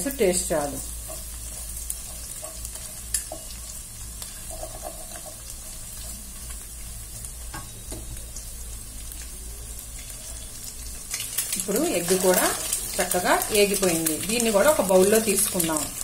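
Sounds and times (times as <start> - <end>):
eggs sizzling in oil: 0.0 - 16.0
spatula tapping and scraping pan: 1.0 - 6.2.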